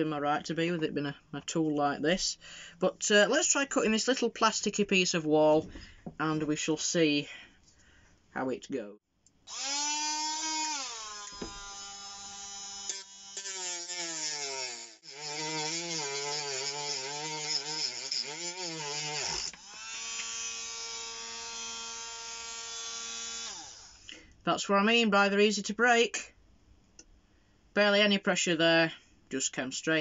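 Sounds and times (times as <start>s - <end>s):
cutting disc cutting plastic: 9.5s - 20.5s
rotary tool whining: 9.5s - 24.1s.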